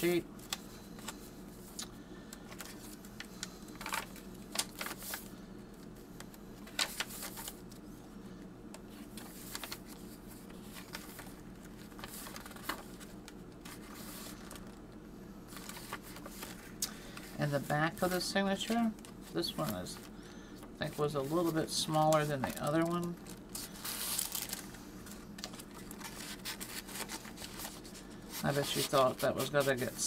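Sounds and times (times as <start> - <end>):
paper pages rustling: 3.7 - 5.3, 6.6 - 7.8, 9.0 - 14.8, 15.5 - 30.0.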